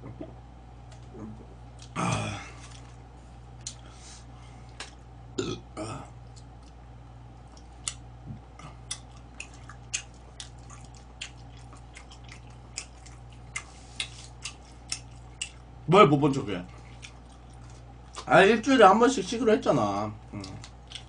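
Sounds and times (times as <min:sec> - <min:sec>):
man burping: 0:01.9 - 0:02.6, 0:05.4 - 0:06.2
chewing and chopstick clicks: 0:08.9 - 0:15.6.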